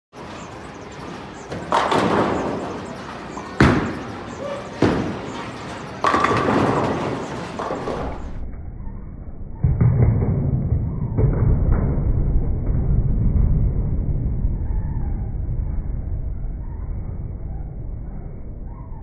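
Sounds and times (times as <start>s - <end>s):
bowling ball rolling on lane: 1.4s - 8.4s
bowling pins crashing: 1.5s - 8.4s
knocks from other lanes: 3.6s - 4.1s.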